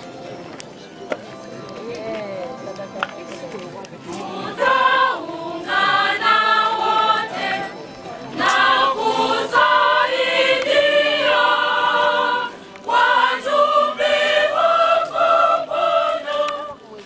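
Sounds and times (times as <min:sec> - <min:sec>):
choir singing a hymn: 0:04.0 - 0:17.0.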